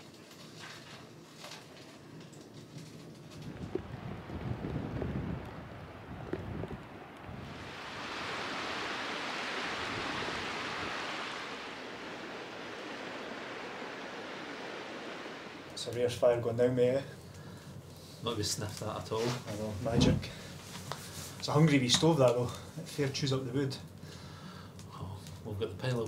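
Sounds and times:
wind buffeting microphone: 3.2 - 15.8.

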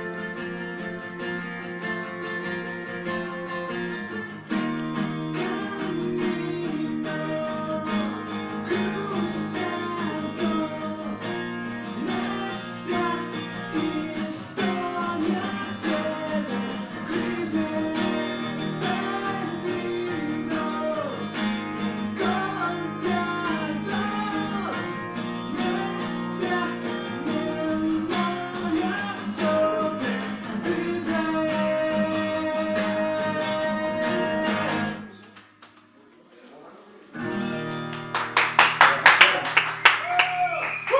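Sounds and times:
acoustic guitars strummed: 0.0 - 35.6, 37.2 - 40.4
man singing: 5.2 - 35.1.

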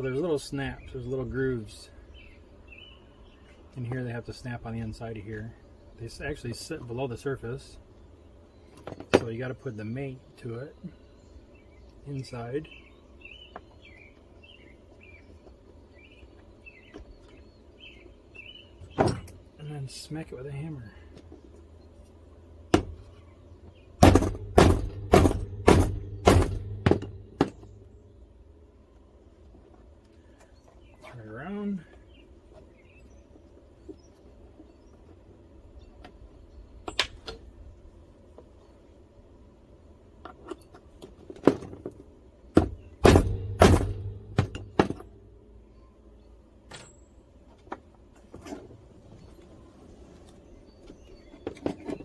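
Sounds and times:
hammer striking connector: 24.0 - 27.6, 43.0 - 45.0
tools knocking on wooden workbench: 24.0 - 27.6.

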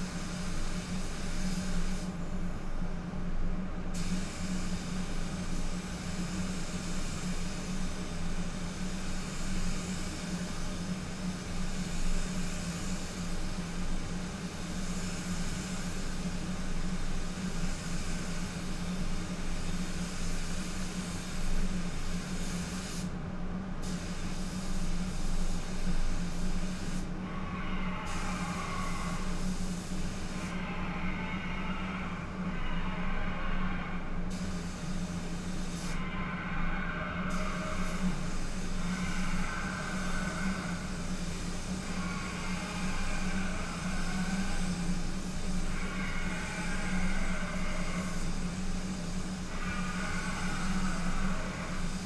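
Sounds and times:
spray gun hissing: 0.0 - 2.4, 3.9 - 23.2, 23.8 - 27.2, 28.0 - 30.6, 34.3 - 36.0, 37.3 - 52.0
spray booth low hum: 0.0 - 52.0.

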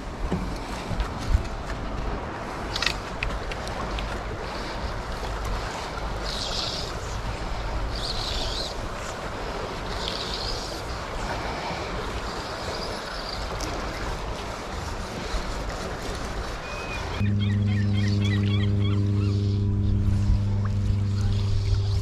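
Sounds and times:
tidal water rushing: 0.0 - 22.0
steady low drone: 17.0 - 22.0.

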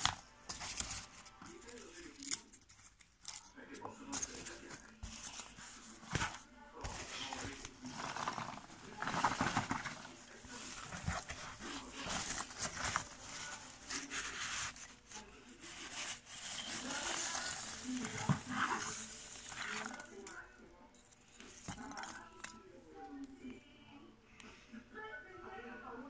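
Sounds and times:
foam packing peanuts rustling: 4.2 - 20.4.

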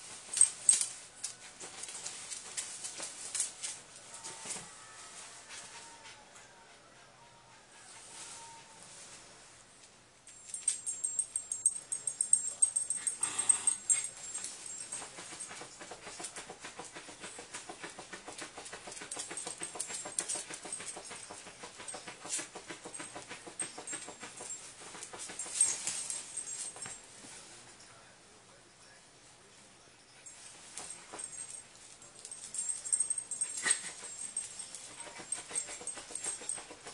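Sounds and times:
dog scratching rapidly: 10.8 - 27.0, 30.7 - 36.9.

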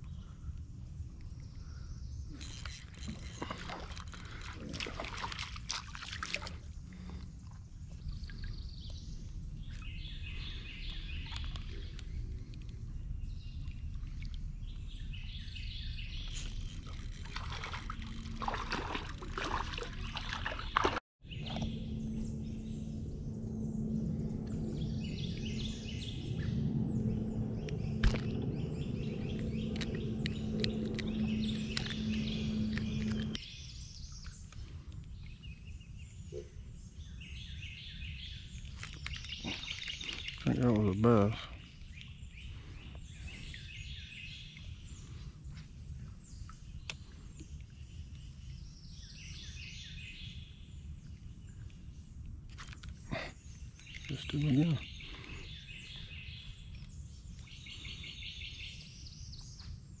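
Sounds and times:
steady low hum: 0.0 - 47.7
birds calling: 1.4 - 59.7
fish splashing in water: 16.7 - 21.6.

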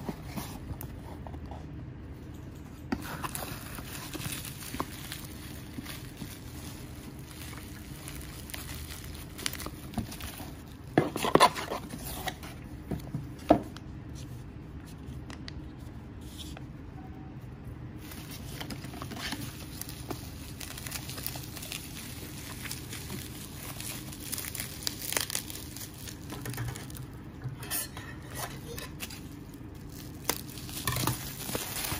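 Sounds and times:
packaging crinkling and rustling: 2.8 - 13.8, 18.0 - 31.9
bubble wrap sharp crackles: 2.9 - 12.4, 18.0 - 27.3, 28.2 - 31.9.

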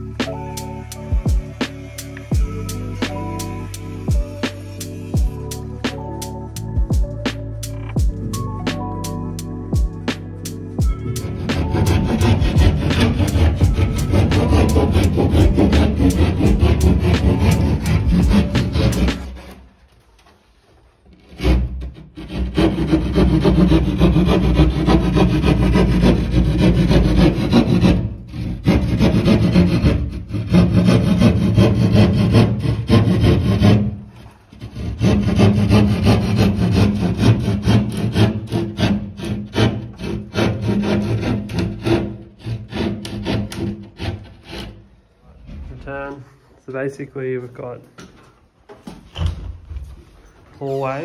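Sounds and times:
saw cutting through material: 10.8 - 19.7, 21.2 - 45.0.

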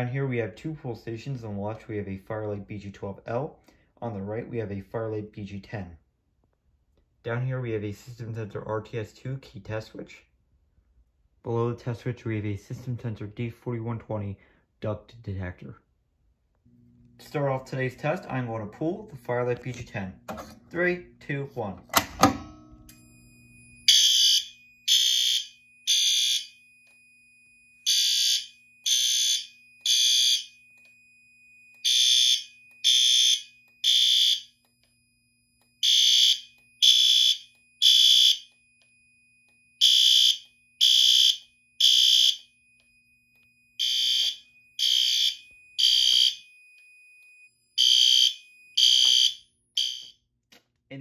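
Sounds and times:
steady high buzzer tone: 22.9 - 27.0, 27.7 - 30.6, 31.7 - 50.2.

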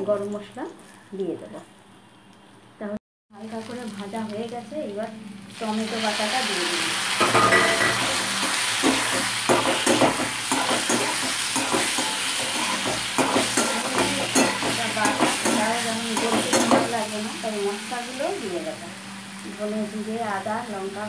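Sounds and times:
hot oil sizzling: 3.3 - 21.0
metal spatula scraping pan: 7.2 - 17.0.

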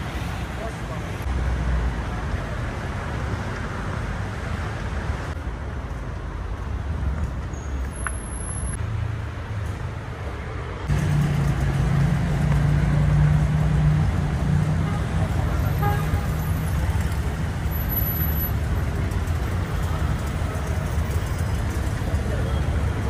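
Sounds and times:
passing vehicles: 0.0 - 23.0.

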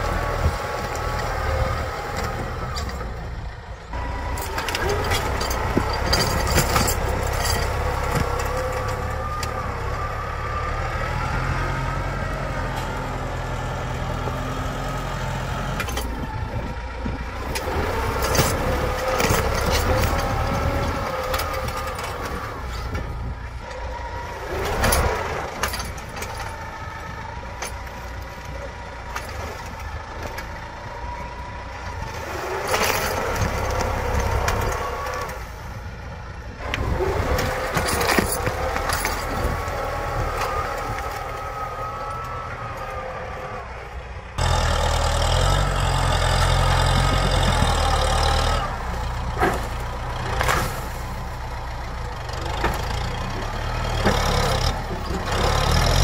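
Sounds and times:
tractor diesel engine under load: 0.0 - 56.0
plough discs knocking and scraping: 4.4 - 9.6, 36.7 - 41.4, 46.3 - 48.2.

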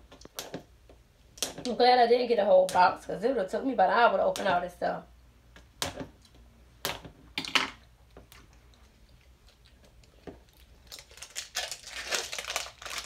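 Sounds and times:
scissors snipping plastic wrapper: 10.9 - 13.0.

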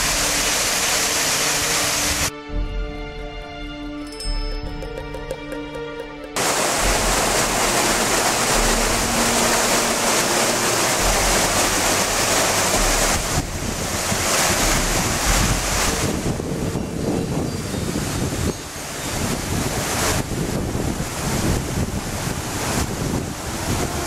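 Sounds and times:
stream cascading over rocks: 0.0 - 2.3, 4.9 - 24.0
background music: 1.2 - 17.0
wind buffeting microphone: 10.4 - 24.0.

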